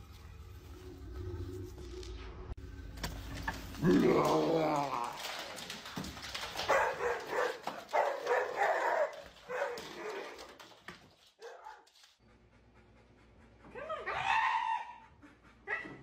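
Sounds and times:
dog barking: 0:06.7 - 0:10.4.

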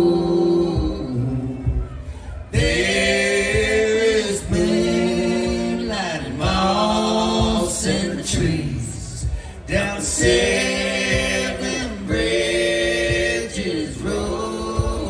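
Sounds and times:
a cappella vocal harmony: 0:00.0 - 0:15.0
singers breathing: 0:02.0 - 0:02.6, 0:09.2 - 0:09.7.

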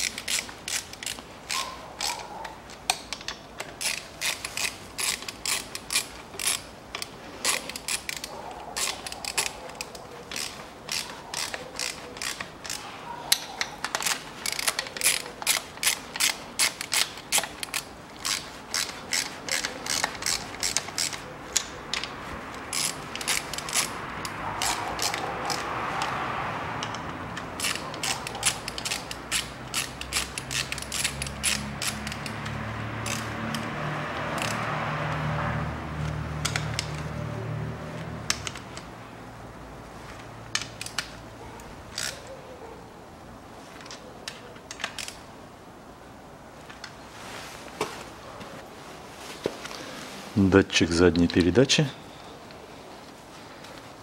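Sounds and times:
ratchet wrench clicking: 0:00.0 - 0:26.2, 0:26.8 - 0:35.4, 0:36.0 - 0:37.2, 0:38.0 - 0:38.9, 0:40.5 - 0:41.2, 0:41.9 - 0:42.3, 0:43.8 - 0:45.2.

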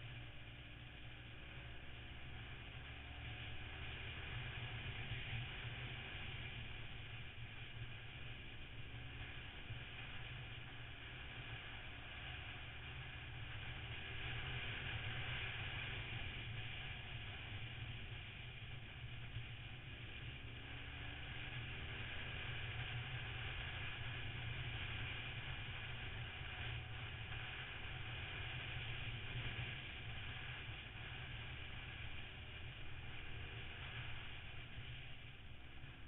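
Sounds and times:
motorcycle engine running: 0:00.0 - 0:36.0.

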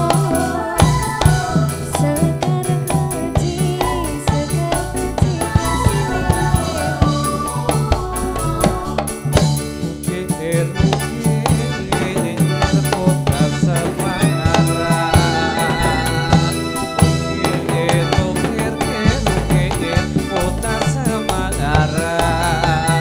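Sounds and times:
jingling percussion: 0:00.0 - 0:23.0
rhythmic drum beat: 0:00.0 - 0:23.0
melody line: 0:10.4 - 0:23.0.

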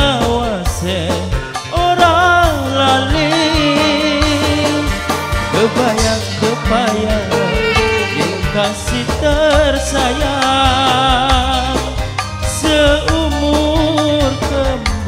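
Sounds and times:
band music through pa: 0:00.0 - 0:15.0
bass: 0:00.0 - 0:15.0
man singing: 0:00.0 - 0:15.0
drum beat: 0:04.3 - 0:11.7.

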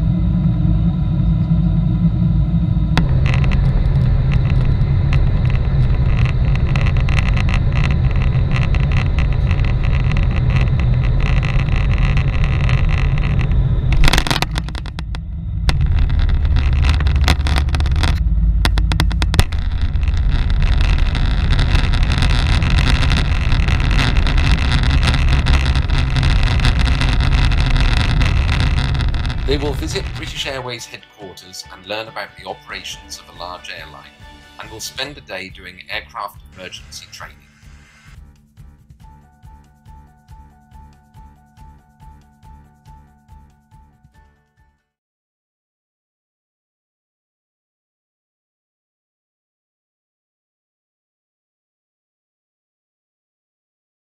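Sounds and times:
roar of jet engines and airflow: 0:00.0 - 0:30.5
deep rumble of landing roll: 0:00.0 - 0:30.6
wheels touching down bump: 0:02.9 - 0:30.4.

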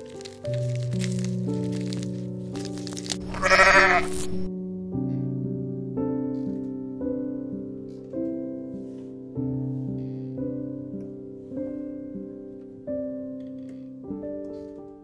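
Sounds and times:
slow solo piano chords: 0:04.1 - 0:15.0.

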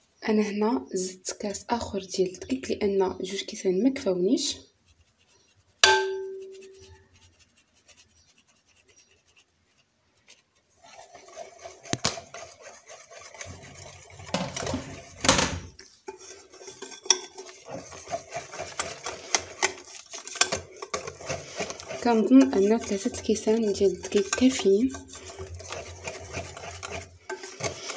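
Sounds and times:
whisk scraping glass bowl: 0:04.0 - 0:27.9
knock on glass bowl ringing: 0:05.8 - 0:06.5.

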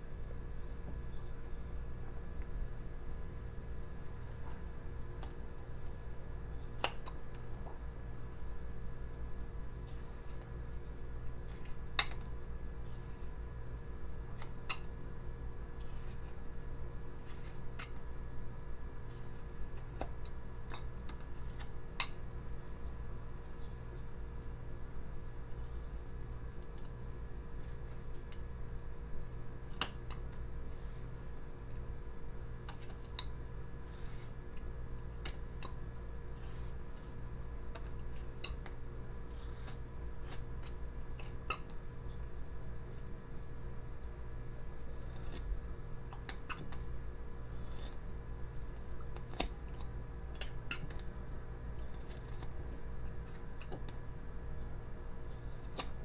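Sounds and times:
low steady hum: 0:00.0 - 0:56.0
knife scraping wood: 0:15.8 - 0:16.4, 0:39.3 - 0:41.7, 0:44.8 - 0:45.6, 0:47.5 - 0:48.0, 0:51.8 - 0:52.6.

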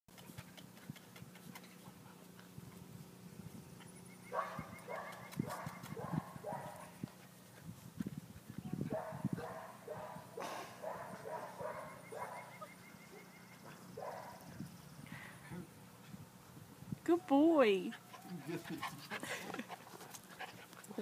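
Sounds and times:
puppies yapping: 0:10.9 - 0:14.5.

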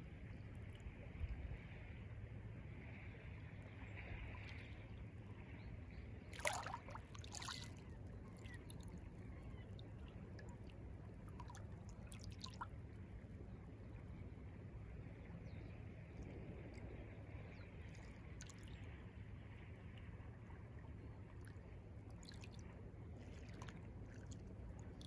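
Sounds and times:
small waves lapping: 0:06.2 - 0:13.1, 0:21.2 - 0:25.0
short water splashes: 0:06.3 - 0:09.0, 0:10.0 - 0:12.7, 0:22.1 - 0:25.0.

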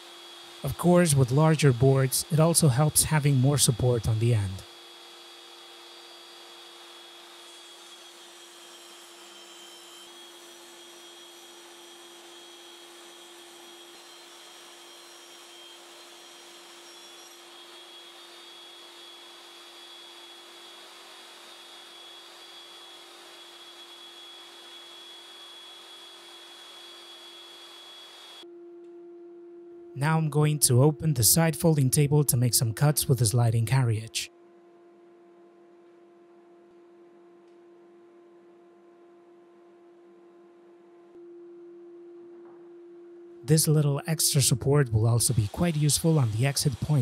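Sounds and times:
shop vacuum running: 0:00.0 - 0:28.5, 0:43.6 - 0:47.0.

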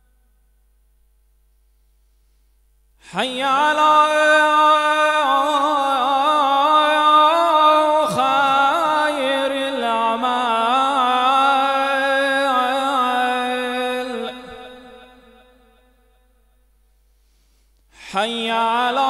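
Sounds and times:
man singing call to prayer: 0:03.1 - 0:15.9, 0:18.0 - 0:19.0.

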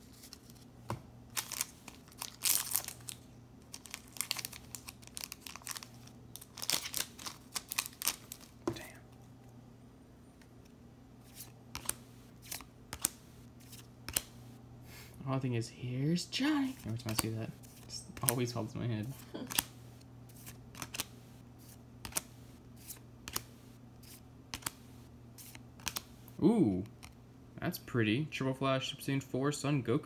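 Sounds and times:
foil pack tearing and crinkling: 0:01.3 - 0:08.6.

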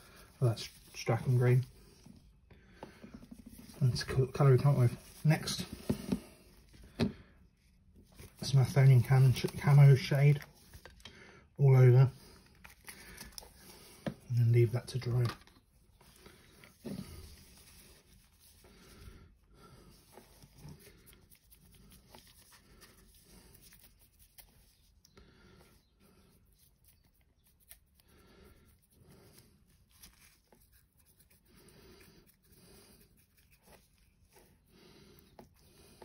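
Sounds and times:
paintbrush scratching: 0:03.2 - 0:06.6, 0:16.0 - 0:19.1, 0:19.8 - 0:25.0, 0:26.0 - 0:36.0.

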